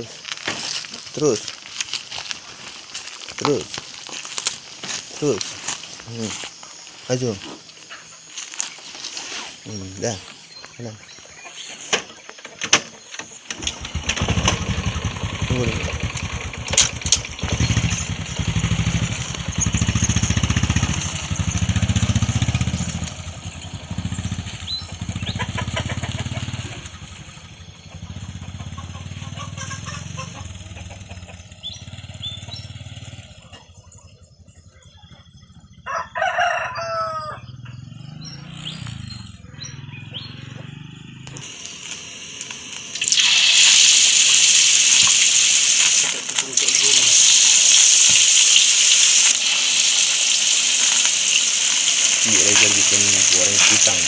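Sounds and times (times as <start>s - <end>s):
motorcycle engine: 11.9s - 54.0s
rooster crowing: 35.8s - 37.6s
food frying in oil: 41.4s - 54.0s.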